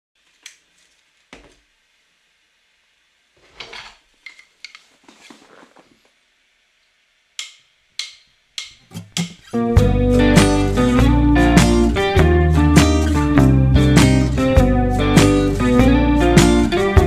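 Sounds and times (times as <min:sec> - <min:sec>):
rustling: 0:03.4 - 0:06.2.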